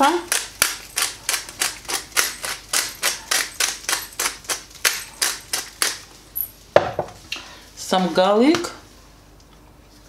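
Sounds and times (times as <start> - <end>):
pepper grinder grinding: 0.0 - 6.5.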